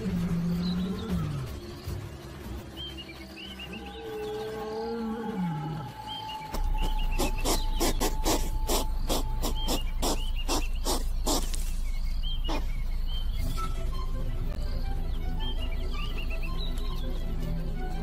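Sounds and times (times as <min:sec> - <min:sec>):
lion growling: 0:00.0 - 0:02.0, 0:03.6 - 0:06.2.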